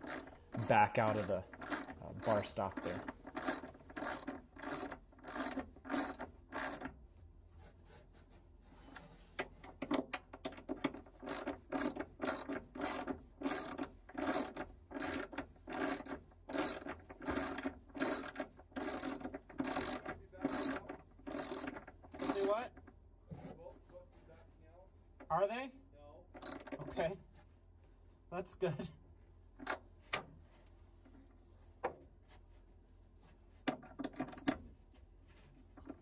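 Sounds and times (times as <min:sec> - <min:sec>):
ratchet wrench clicking: 0:00.0 - 0:06.9, 0:11.2 - 0:22.5, 0:26.4 - 0:26.8.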